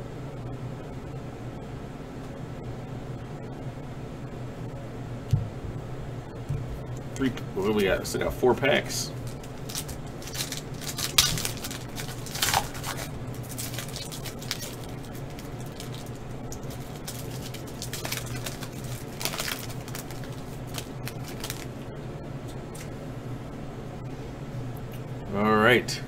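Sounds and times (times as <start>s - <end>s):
steady low hum: 0.0s - 26.0s
foil pack tearing and crinkling: 9.2s - 21.8s.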